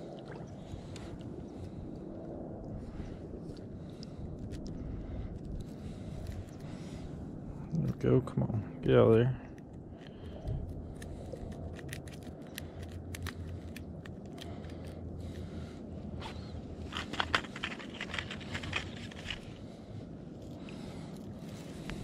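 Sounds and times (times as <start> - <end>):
low rumble: 0.0 - 22.0
light clicks and scrapes: 16.2 - 19.8.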